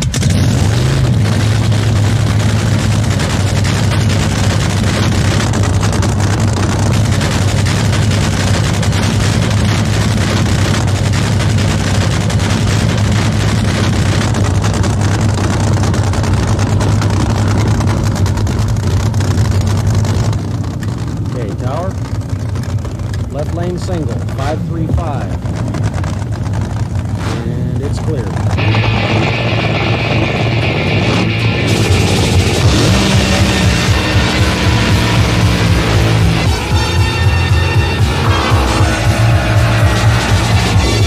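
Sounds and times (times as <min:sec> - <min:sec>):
boat engine droning: 0:00.0 - 0:41.0.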